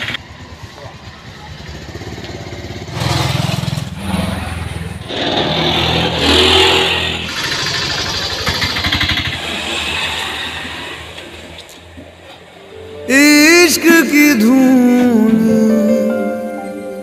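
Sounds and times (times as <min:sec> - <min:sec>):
motor scooter passing: 0:00.0 - 0:13.1.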